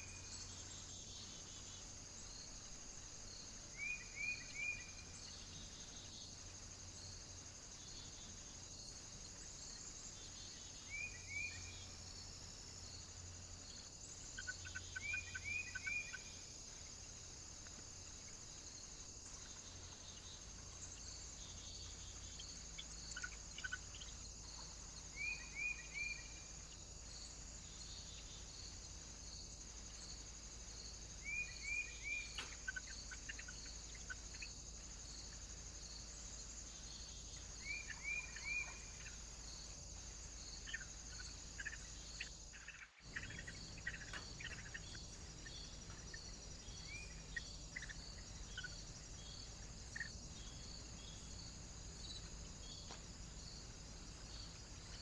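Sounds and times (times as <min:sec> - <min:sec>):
high chirring of insects: 0:00.0 - 0:55.0
small birds calling: 0:13.7 - 0:16.4, 0:19.3 - 0:26.8, 0:31.2 - 0:35.5, 0:36.7 - 0:53.0.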